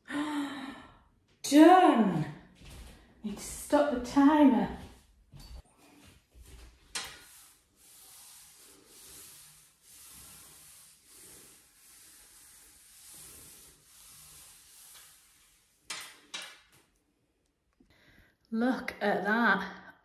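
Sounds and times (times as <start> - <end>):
palms rubbing on cardboard puzzle: 6.4 - 15.9.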